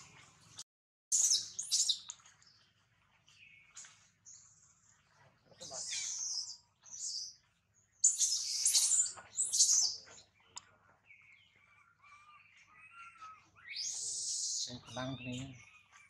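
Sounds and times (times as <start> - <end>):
thin monkey calls: 8.0 - 10.1, 11.5 - 16.0
monkeys squealing: 11.8 - 14.8.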